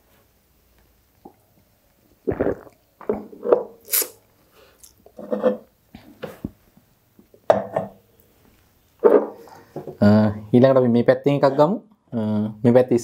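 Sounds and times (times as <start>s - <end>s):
sharp hissing exhale: 3.8s - 4.9s.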